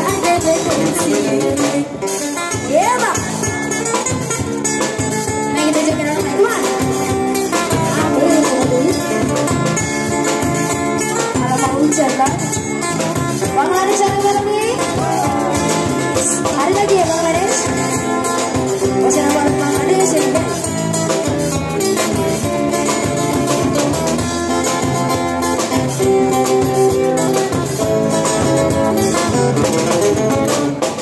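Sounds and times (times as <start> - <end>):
amplified acoustic guitar: 0.0 - 31.0
drum kit beat: 0.0 - 31.0
person singing: 13.8 - 17.6.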